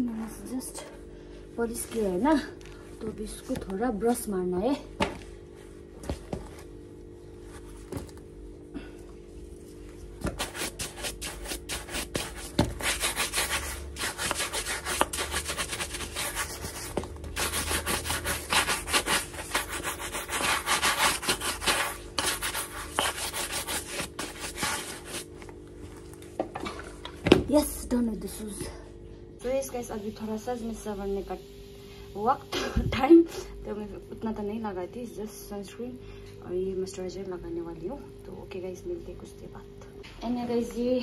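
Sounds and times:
shoe brush scrubbing leather boots: 0:10.3 - 0:25.3.

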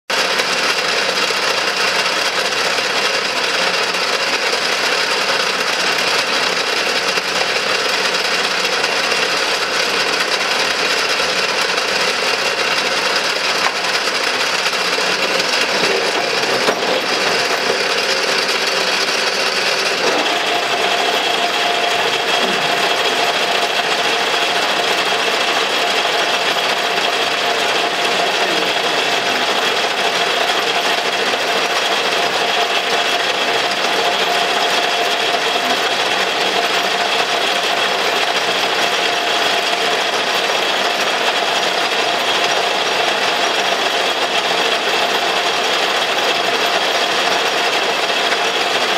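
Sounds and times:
lathe running with mechanical whir: 0:00.1 - 0:48.9
steady machine tone: 0:00.1 - 0:48.9.

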